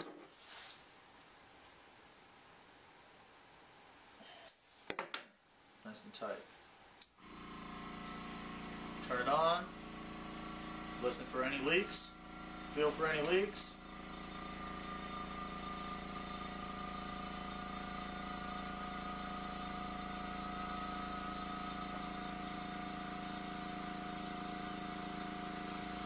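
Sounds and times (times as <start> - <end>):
airbrush compressor humming: 7.2 - 26.0.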